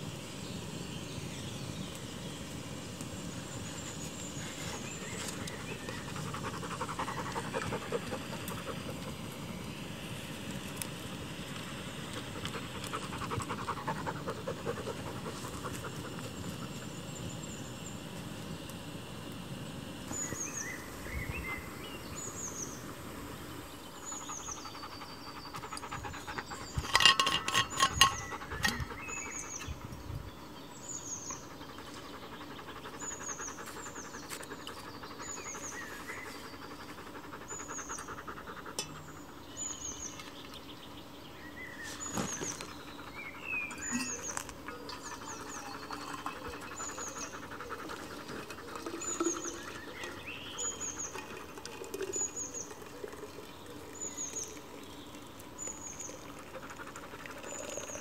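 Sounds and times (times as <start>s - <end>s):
dog panting: 6.0s - 9.2s, 12.4s - 16.3s, 25.0s - 26.6s, 45.3s - 48.9s
camping gear clicks and knocks: 26.8s - 28.8s
bird chirps: 41.4s - 47.4s.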